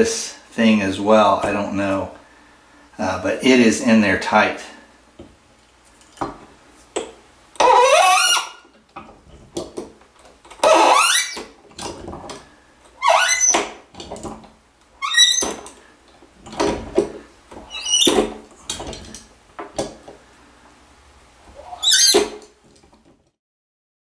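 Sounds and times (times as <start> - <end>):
faucet part squeaking: 7.6 - 8.7, 10.5 - 12.0, 13.0 - 14.3, 15.0 - 15.8, 17.6 - 19.2, 21.6 - 22.5.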